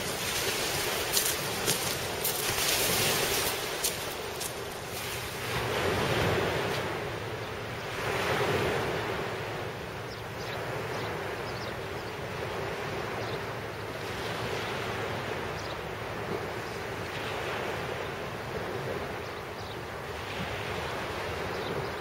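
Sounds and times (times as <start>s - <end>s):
waves washing up pebble beach: 0.0s - 9.5s
wind buffeting microphone: 0.0s - 22.0s.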